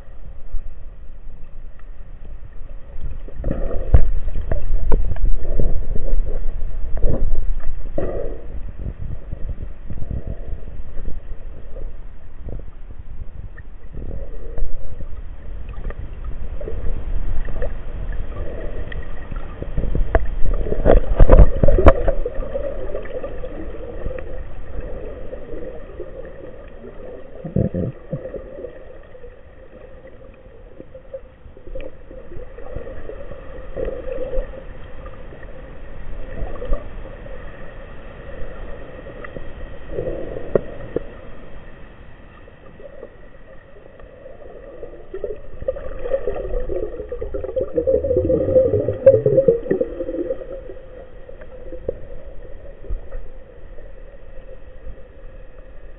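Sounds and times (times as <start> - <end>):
underwater rumble of moving water: 0.0 - 55.9
underwater clicks and knocks: 3.4 - 5.4, 19.8 - 22.3.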